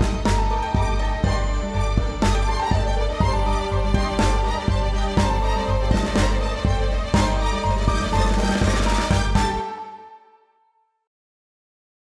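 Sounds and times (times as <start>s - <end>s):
theme music with steady beat: 0.0s - 10.5s.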